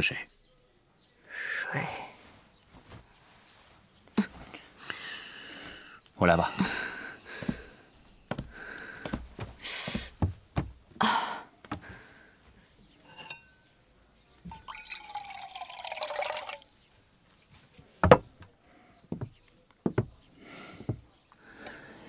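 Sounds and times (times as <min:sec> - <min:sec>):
small clink: 0:13.0 - 0:13.7
water pouring into a mug: 0:14.5 - 0:17.0.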